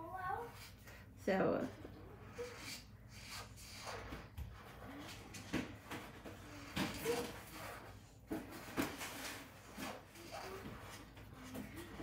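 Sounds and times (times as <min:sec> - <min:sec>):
marker scratching on paper: 0:02.1 - 0:05.2, 0:06.4 - 0:08.2, 0:09.8 - 0:11.4.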